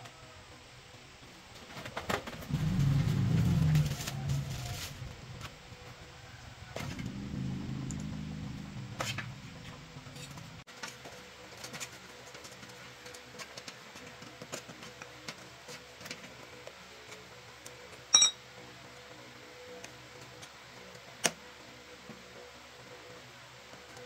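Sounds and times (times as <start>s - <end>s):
low rumble: 2.4s - 10.7s
sharp ringing metallic click: 18.1s - 18.4s.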